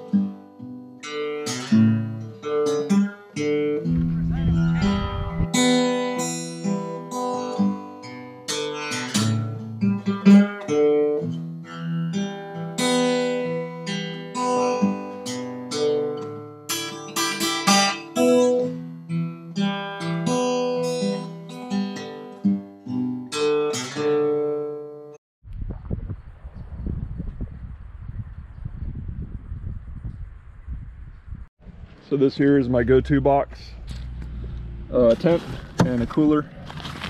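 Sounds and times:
acoustic guitar picking: 0:00.0 - 0:25.2.

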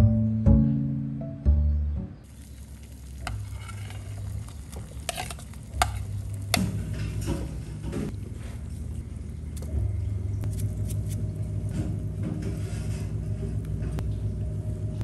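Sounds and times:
water boiling in pan: 0:02.3 - 0:09.3.

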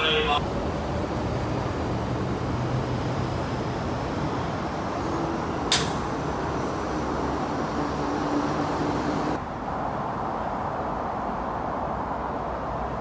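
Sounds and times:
electric train pulling away: 0:00.0 - 0:09.4
short sharp click: 0:05.7 - 0:06.0.

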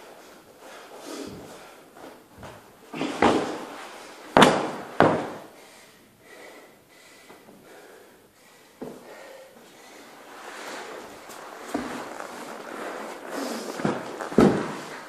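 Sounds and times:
dummy thudding onto floor: 0:04.4 - 0:05.5, 0:13.8 - 0:15.0.

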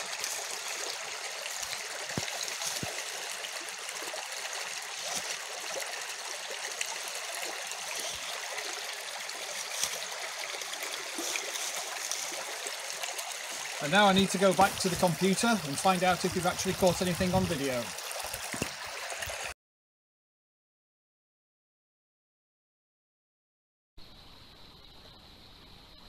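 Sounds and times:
stream trickling: 0:00.0 - 0:19.6.

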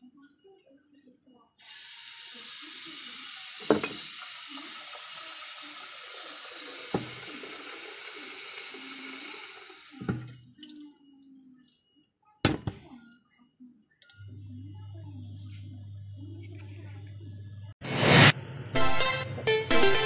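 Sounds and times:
cup knocking: 0:03.6 - 0:04.0, 0:07.0 - 0:07.2, 0:12.5 - 0:12.8
tap running into metal sink: 0:03.6 - 0:04.2, 0:06.8 - 0:07.5
objects clunking set down: 0:12.5 - 0:12.9.

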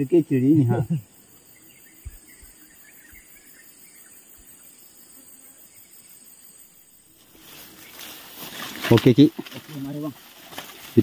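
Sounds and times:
insects chirring: 0:00.0 - 0:11.0
faint bird chirps: 0:00.1 - 0:08.6.

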